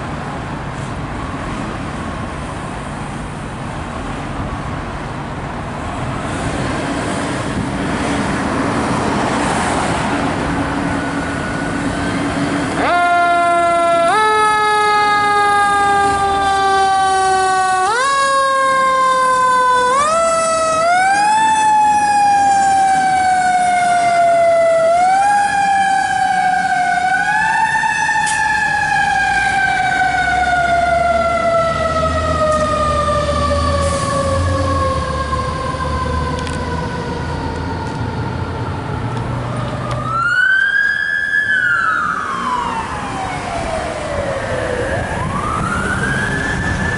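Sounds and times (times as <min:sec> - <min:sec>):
siren whoop: 0:12.8 - 0:38.8, 0:39.8 - 0:46.9
mechanical siren wailing: 0:12.8 - 0:46.9.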